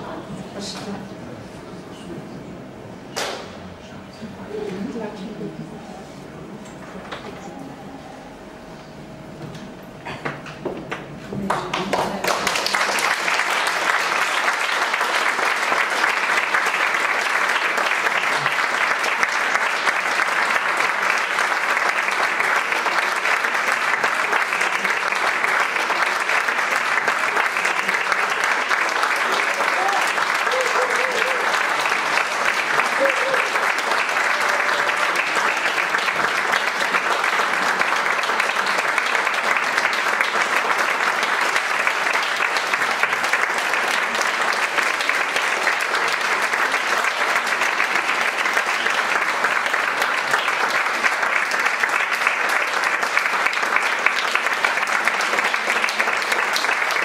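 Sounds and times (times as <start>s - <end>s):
faint voices in crowd: 0.0s - 12.4s, 20.1s - 43.0s
audience applauding: 11.0s - 57.0s.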